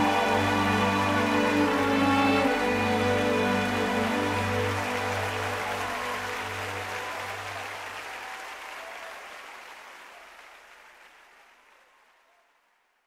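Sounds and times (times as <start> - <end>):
gospel song: 0.0 - 8.3.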